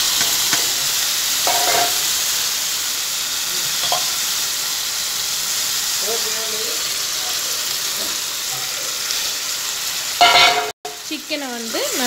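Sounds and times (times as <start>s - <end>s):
chicken sizzling in hot oil: 0.0s - 12.0s
metal spatula scraping pot: 1.5s - 2.1s.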